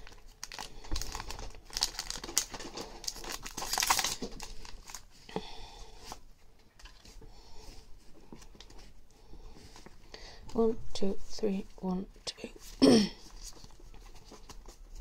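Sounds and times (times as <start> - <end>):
foil wrapper crinkling and tearing: 0.0 - 5.1.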